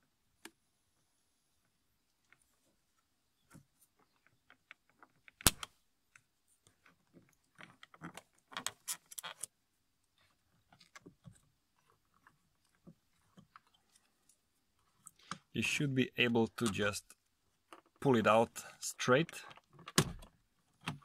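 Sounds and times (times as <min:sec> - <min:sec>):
sharp plastic snap: 0:05.4 - 0:05.8.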